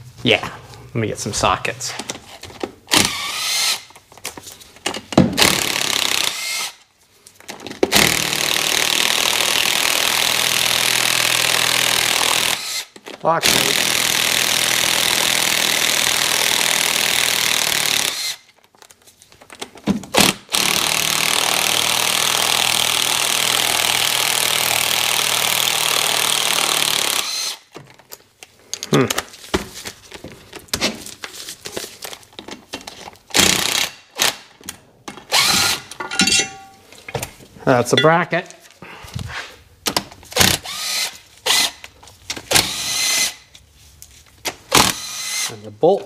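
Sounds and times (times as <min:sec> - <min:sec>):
cordless drill running: 0:02.9 - 0:03.9, 0:05.4 - 0:06.8, 0:08.0 - 0:12.9, 0:13.7 - 0:18.4, 0:20.5 - 0:27.6, 0:35.3 - 0:35.8, 0:40.5 - 0:41.8, 0:42.5 - 0:43.4, 0:44.7 - 0:45.5
metal parts clicking and clattering: 0:35.8 - 0:36.8.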